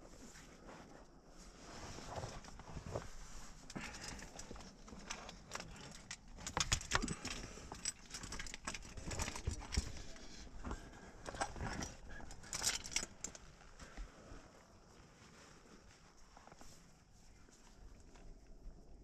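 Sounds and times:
metal climbing gear jangling: 3.7s - 13.8s.

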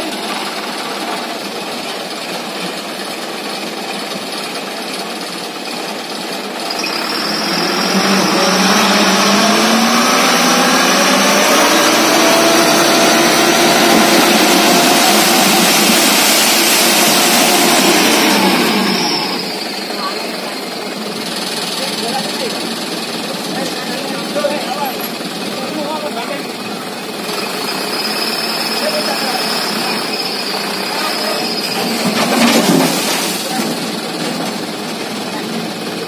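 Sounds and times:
diesel engine revving: 5.9s - 36.0s.

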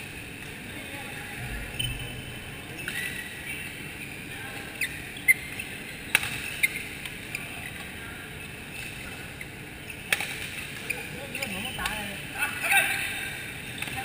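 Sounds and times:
busy hall background: 0.0s - 14.0s
shoes squeaking on court floor: 1.5s - 12.0s.

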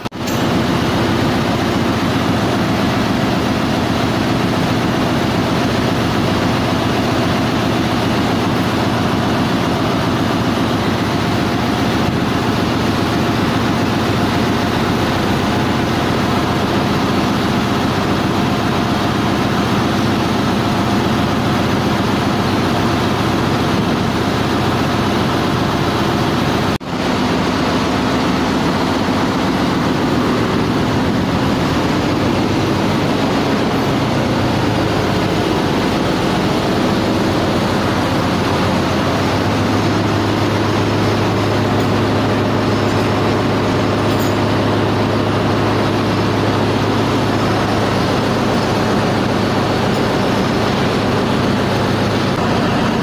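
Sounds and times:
engine room machinery noise: 0.0s - 53.0s
deep steady hum: 27.0s - 53.0s.

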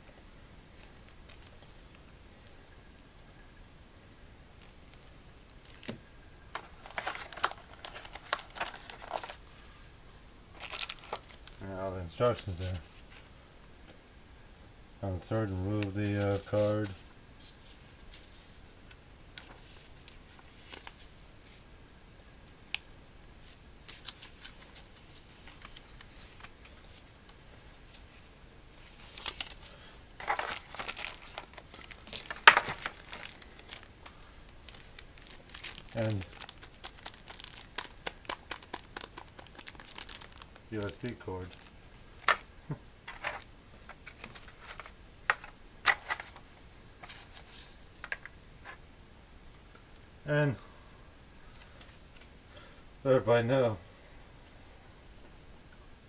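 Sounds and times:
packaging crinkling: 4.6s - 9.4s, 10.5s - 13.2s, 23.4s - 27.3s, 28.8s - 46.4s
paper leaflet rustling: 5.6s - 9.4s, 19.4s - 21.6s, 23.4s - 48.8s.

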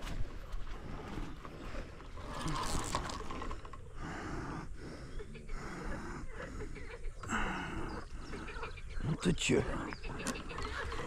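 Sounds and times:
heavy rhythmic breathing: 3.3s - 9.0s.

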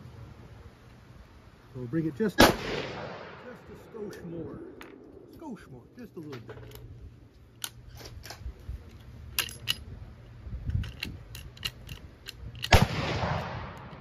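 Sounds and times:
loud sharp crack: 2.4s - 3.6s, 12.7s - 14.0s.

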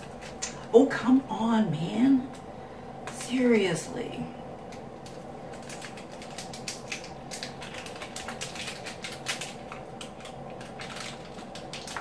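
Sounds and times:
plastic tube crinkling: 4.7s - 12.0s.

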